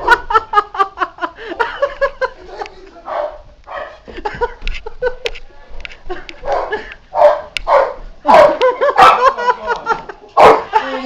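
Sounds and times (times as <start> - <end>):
dog barking: 3.1 - 4.0, 6.5 - 9.4, 10.4 - 10.7.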